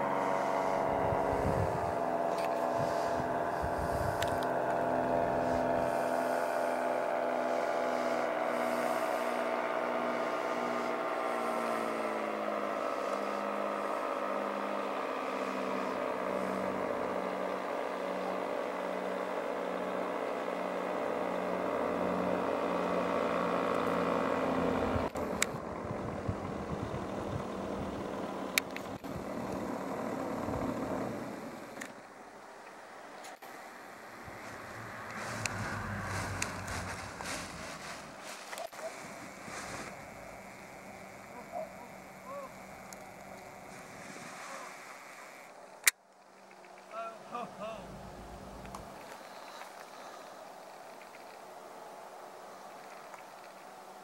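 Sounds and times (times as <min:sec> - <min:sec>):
paramotor engine droning: 0:00.0 - 0:54.0
rushing noise: 0:33.6 - 0:38.4.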